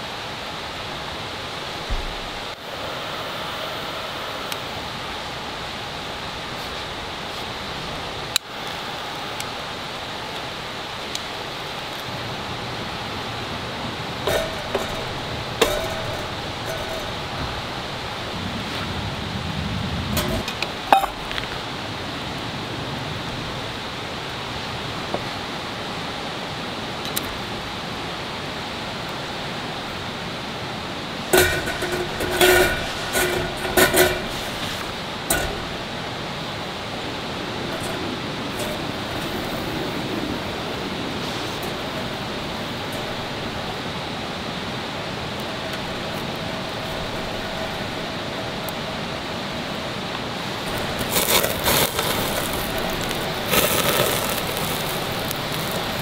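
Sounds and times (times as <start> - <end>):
soft steady hiss: 0.0 - 56.0
metal tin clinking on grill: 14.2 - 18.0, 20.2 - 21.3, 31.3 - 36.1, 37.7 - 39.7, 50.7 - 56.0.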